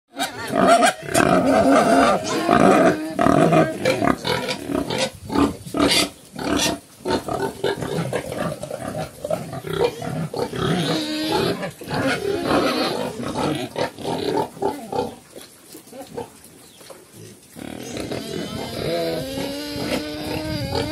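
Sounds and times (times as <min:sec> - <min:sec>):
pig high call: 0:00.1 - 0:03.8
pigs grunting: 0:00.1 - 0:16.4, 0:17.1 - 0:20.9.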